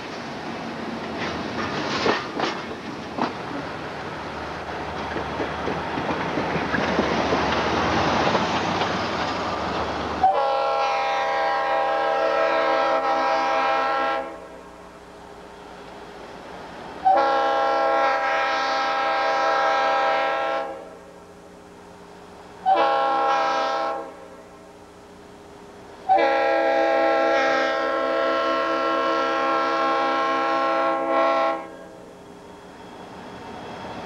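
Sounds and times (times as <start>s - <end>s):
rushing noise of train: 0.0s - 34.0s
locomotive air horn blasts: 10.2s - 14.6s, 17.0s - 21.1s, 22.6s - 24.5s, 26.1s - 32.0s.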